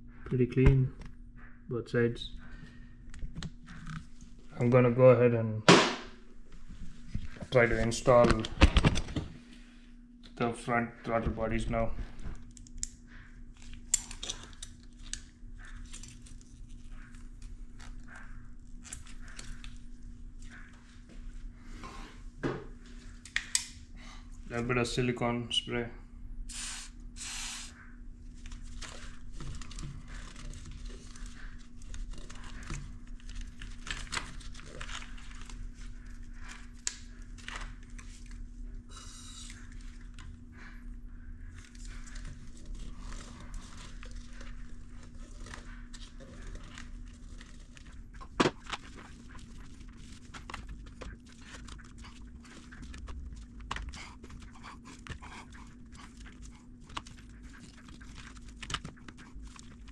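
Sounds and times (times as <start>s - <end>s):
faint steady hum: 0.0s - 59.9s
aerosol spray hiss: 26.5s - 27.7s
gloved hands rustling and scraping: 27.2s - 40.8s, 41.4s - 59.9s.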